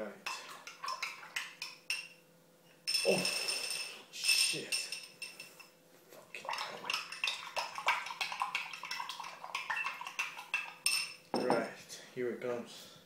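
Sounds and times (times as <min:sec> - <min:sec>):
metal spoon clinking in glass: 0:01.9 - 0:02.2, 0:02.8 - 0:05.7, 0:09.6 - 0:11.7.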